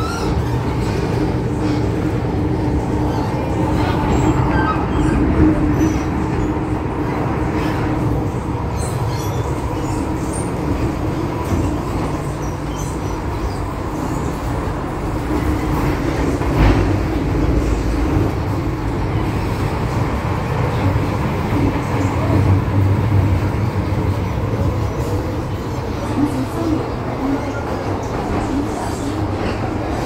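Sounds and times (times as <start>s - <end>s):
train wheels rumbling on rail: 0.0s - 30.0s.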